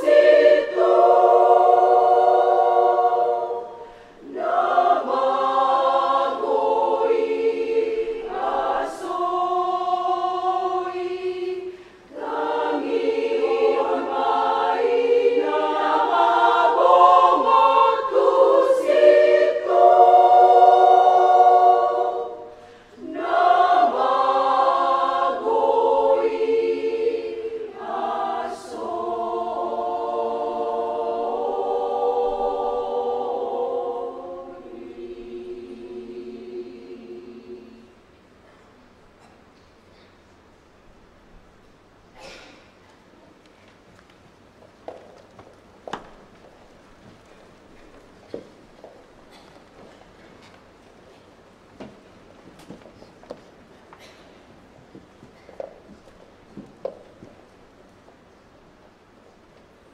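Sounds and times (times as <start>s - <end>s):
women's choir singing: 0.0s - 38.3s.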